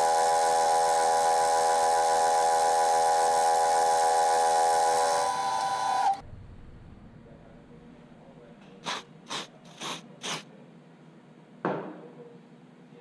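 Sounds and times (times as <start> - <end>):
milling machine cutting metal: 0.0 - 6.2.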